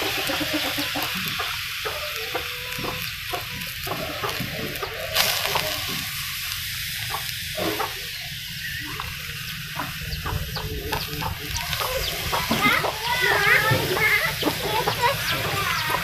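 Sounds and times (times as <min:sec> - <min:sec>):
small crackles: 0:00.0 - 0:16.0
wet leaves sizzling in a wok: 0:00.0 - 0:16.0.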